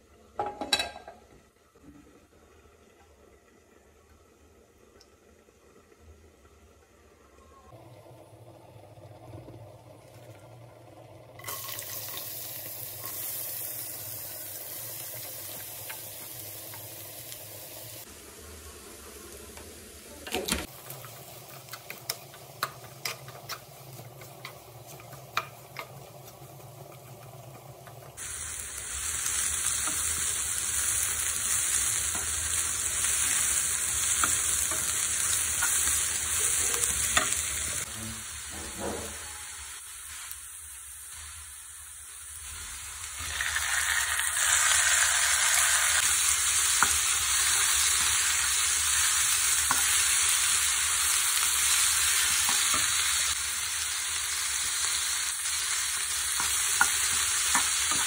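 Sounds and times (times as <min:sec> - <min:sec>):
onions sizzling in oil: 0:05.3 - 0:58.0
spatula tapping a pan: 0:24.2 - 0:26.0, 0:56.3 - 0:58.0.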